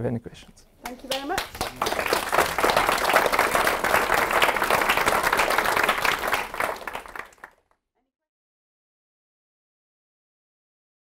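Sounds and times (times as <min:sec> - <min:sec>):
audience applauding: 0:00.8 - 0:07.6.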